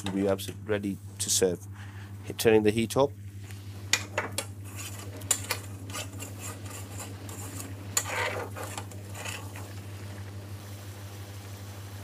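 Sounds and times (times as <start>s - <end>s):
steady low hum: 0.0s - 12.0s
metal spoon scraping frying pan: 4.6s - 9.8s.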